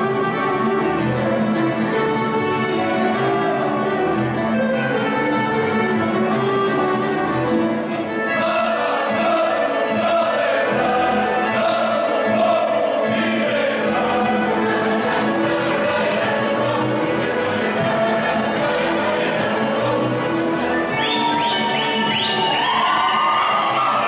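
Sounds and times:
folk band playing: 0.0 - 24.0
group singing: 2.2 - 4.3, 7.9 - 24.0.

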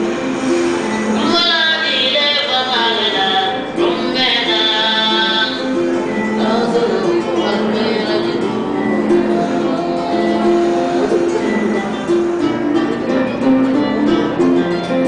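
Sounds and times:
high wavering melody: 0.0 - 15.0
plucked string instrument: 0.0 - 15.0.

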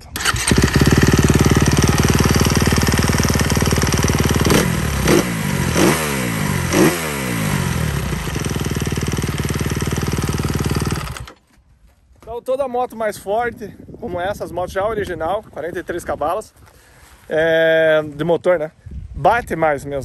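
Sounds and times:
motorcycle engine idling: 0.2 - 11.4
engine mechanical knocking: 8.4 - 11.3.

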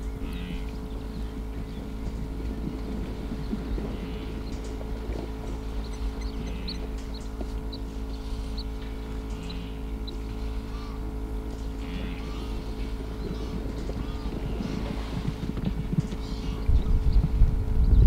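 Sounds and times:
vehicle engine idling: 0.0 - 18.0
high bird chirps: 5.5 - 11.0.

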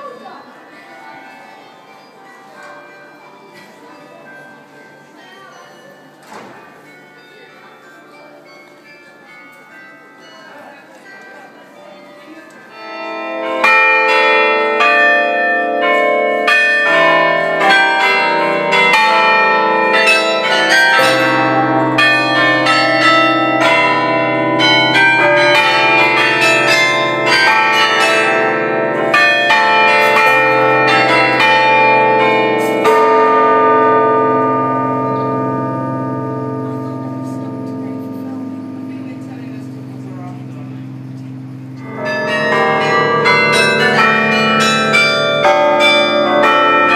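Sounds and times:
carillon bells playing a tune: 6.8 - 46.9
deep bell hum: 34.4 - 46.6.

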